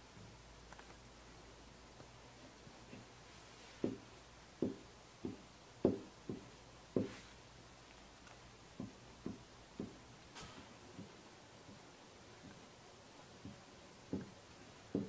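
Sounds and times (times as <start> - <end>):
hot iron tapping on paper: 8.8 - 11.8.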